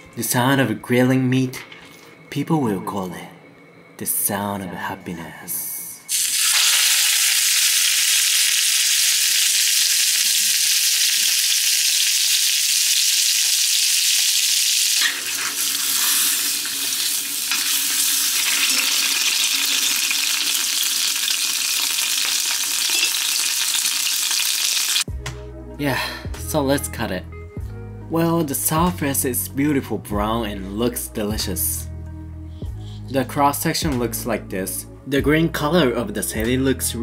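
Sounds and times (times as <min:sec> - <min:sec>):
meat sizzling in hot oil: 0:06.1 - 0:25.1.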